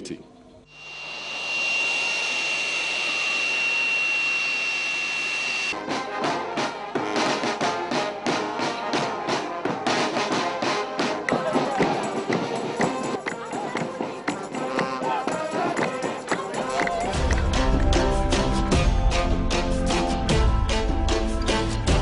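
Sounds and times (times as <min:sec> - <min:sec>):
jet engines whining: 0:00.7 - 0:05.8
brass band playing: 0:05.7 - 0:13.2, 0:14.6 - 0:22.0.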